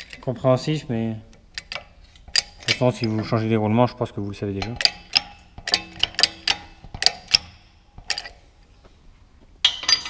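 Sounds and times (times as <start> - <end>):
sharp metallic clicks: 1.3 - 3.3, 4.6 - 8.4.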